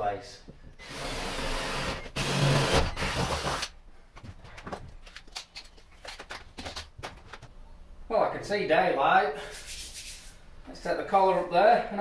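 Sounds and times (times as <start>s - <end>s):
power drill boring: 0.8s - 3.6s.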